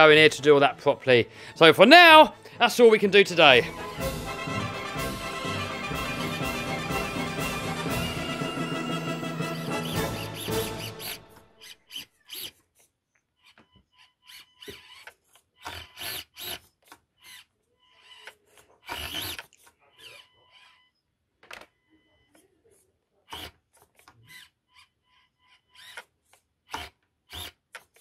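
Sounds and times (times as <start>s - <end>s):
small electric motor whirring: 9.8s - 20.8s, 23.3s - 28.0s.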